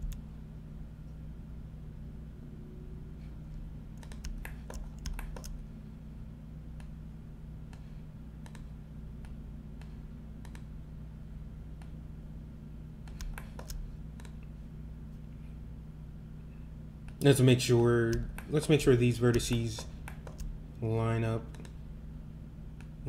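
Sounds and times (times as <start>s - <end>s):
keyboard and mouse clicking: 0.0s - 0.2s, 4.0s - 5.6s, 8.4s - 10.7s, 13.0s - 14.4s, 19.3s - 20.5s, 21.5s - 21.8s
low electrical hum: 0.0s - 23.0s.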